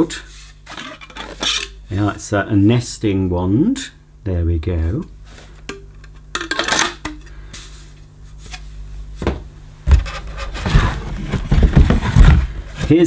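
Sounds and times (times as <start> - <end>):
bumps against cardboard box: 9.2 - 12.8.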